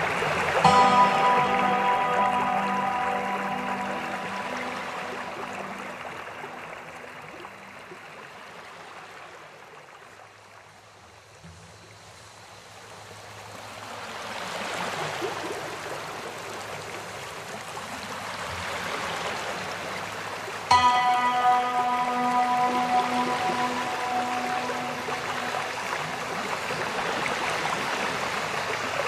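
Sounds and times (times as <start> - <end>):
river water rushing over rocks: 13.5 - 29.0.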